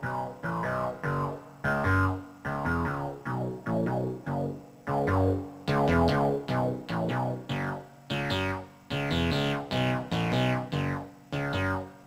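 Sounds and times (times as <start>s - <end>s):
synthesizer note sequence: 0.6s - 12.0s.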